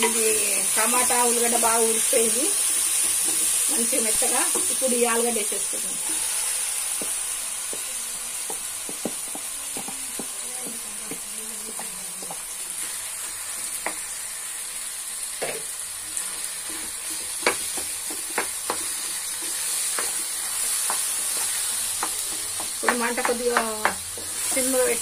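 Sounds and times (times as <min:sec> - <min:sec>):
frying sizzle: 0:00.0 - 0:25.0
spatula tapping and scraping pan: 0:02.6 - 0:04.9, 0:06.9 - 0:12.6, 0:15.4 - 0:25.0.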